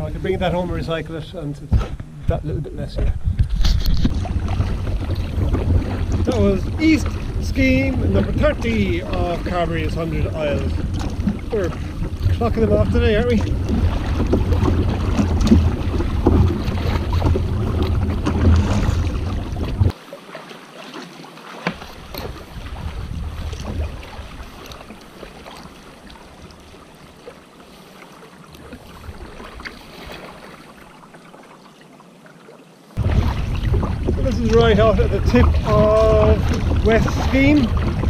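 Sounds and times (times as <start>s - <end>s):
wind rumbling on microphone: 0.0s - 19.9s, 21.8s - 27.0s, 33.0s - 38.0s
paddle strokes and splashing: 0.0s - 38.0s
water lapping: 0.0s - 38.0s.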